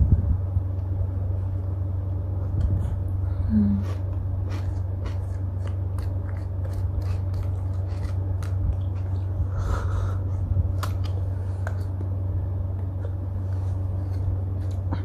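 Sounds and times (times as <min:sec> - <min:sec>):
low hum: 0:00.0 - 0:15.0
wooden stick scraping frozen yogurt: 0:03.8 - 0:09.3, 0:13.4 - 0:15.0
eating crunches: 0:03.8 - 0:09.4, 0:10.7 - 0:12.2, 0:12.8 - 0:15.0.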